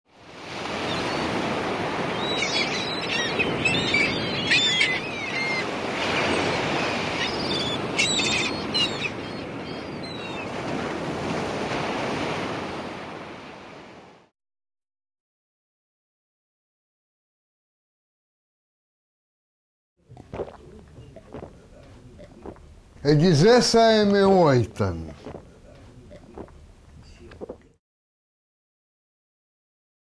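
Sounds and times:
sea surf washing: 0.1s - 14.3s, 20.2s - 27.6s
birds chirping: 0.7s - 10.6s, 20.2s - 27.7s.

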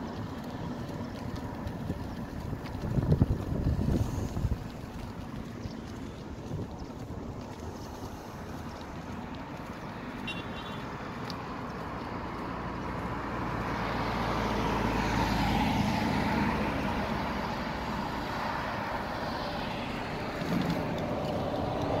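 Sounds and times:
car driving past: 12.1s - 22.0s.

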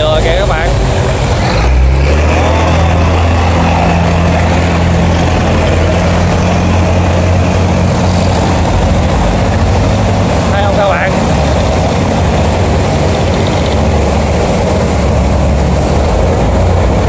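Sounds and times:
barge diesel engines humming: 0.0s - 17.0s
water washing: 0.0s - 17.0s.

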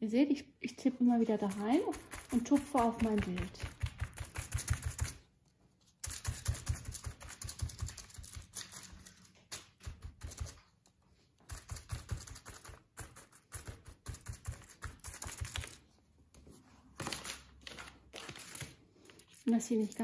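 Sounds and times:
sponge dabbing on foil: 1.0s - 15.9s.

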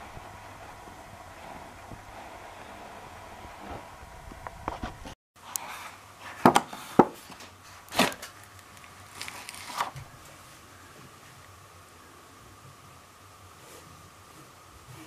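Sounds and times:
sharp knocks on wooden boards: 6.4s - 7.2s
newspaper rustling: 7.2s - 10.4s.

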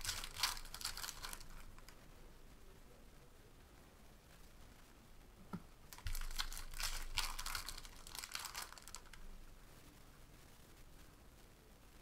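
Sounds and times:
foil wrapper crinkling: 0.0s - 2.0s, 5.9s - 9.2s.

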